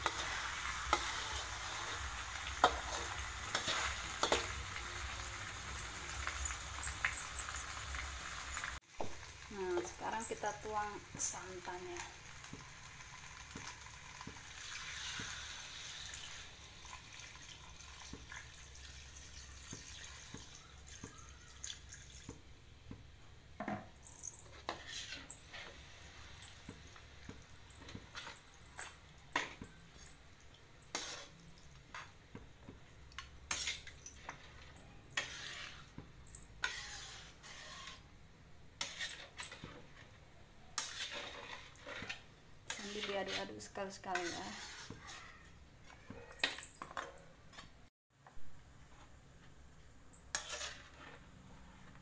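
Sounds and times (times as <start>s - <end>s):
liquid hissing in hot wok: 0.0s - 10.5s, 12.2s - 18.2s, 30.8s - 31.4s, 35.1s - 36.0s, 36.6s - 38.1s, 40.8s - 43.5s, 44.1s - 45.3s
metal spatula scraping wok: 0.0s - 16.8s, 24.0s - 30.2s, 30.8s - 32.2s, 33.1s - 38.2s, 38.8s - 47.7s, 50.2s - 52.0s.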